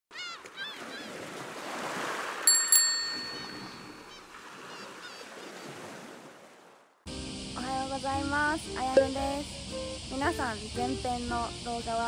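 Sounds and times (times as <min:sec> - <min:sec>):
bicycle bell ringing: 0:02.5 - 0:04.1.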